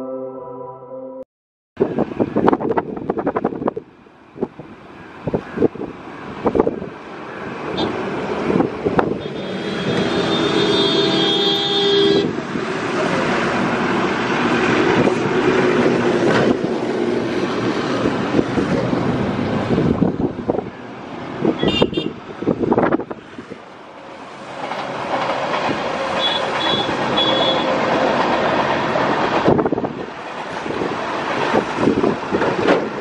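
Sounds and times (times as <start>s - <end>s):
train wheels rumbling on rails: 4.4s - 33.0s
locomotive horn blast: 9.2s - 12.4s, 26.1s - 27.9s
wheels clacking over rail joints: 12.7s - 19.8s, 23.1s - 33.0s.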